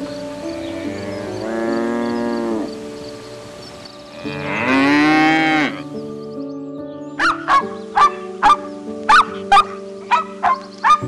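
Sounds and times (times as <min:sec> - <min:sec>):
bison lowing: 0:00.6 - 0:02.8.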